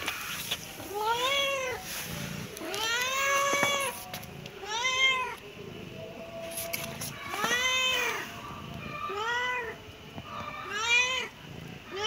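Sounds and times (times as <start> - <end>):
cat meowing: 0.9 - 1.8, 2.6 - 5.4, 7.1 - 11.3.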